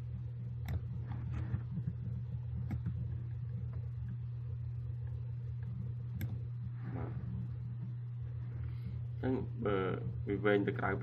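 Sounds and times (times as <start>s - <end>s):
low electrical hum: 0.0s - 11.0s
computer mouse clicks: 0.6s - 4.2s, 5.5s - 6.4s.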